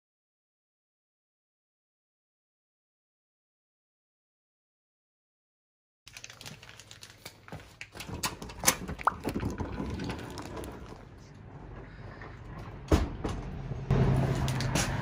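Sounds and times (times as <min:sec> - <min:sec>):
footsteps: 0:14.0 - 0:15.0.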